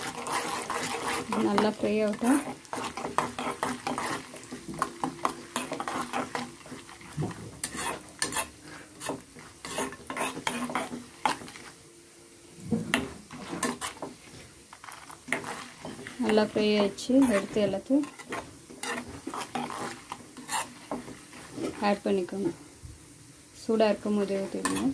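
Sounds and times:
spoon scraping metal pan: 0.0 - 11.7, 12.9 - 22.0, 24.0 - 24.9
food sizzling in fat: 0.0 - 24.9.

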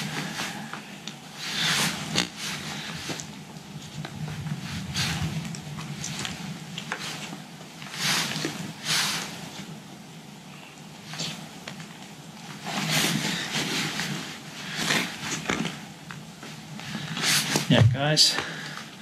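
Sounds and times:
webbing rustling scrapes: 0.0 - 9.7, 12.5 - 15.8.

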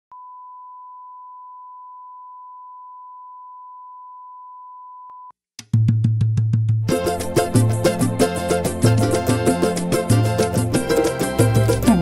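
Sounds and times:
music with fast drumbeat: 5.6 - 12.0.

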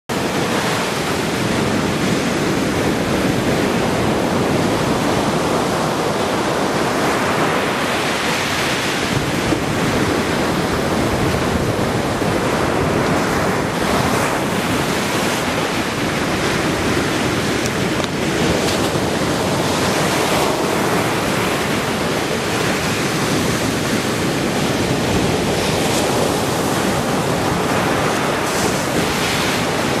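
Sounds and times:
ocean waves breaking on beach: 0.1 - 30.0.

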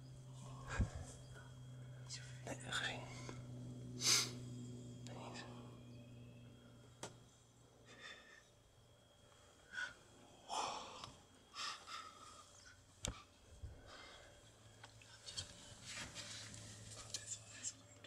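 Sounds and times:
hushed whispering: 2.0 - 3.4, 5.0 - 5.9
soft breathy sounds: 9.2 - 15.8.

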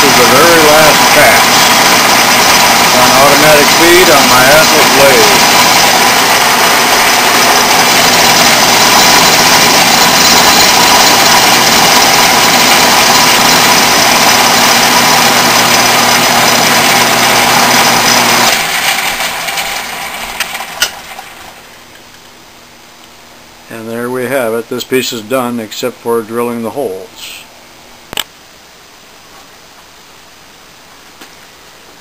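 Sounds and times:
metal lathe running: 0.0 - 21.6
sharp click: 28.1 - 28.3.

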